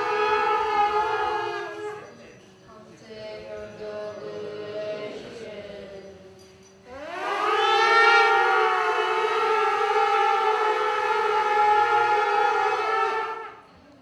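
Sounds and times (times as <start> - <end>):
soft ritual chanting: 0.0 - 8.3
horn blast: 6.9 - 13.8.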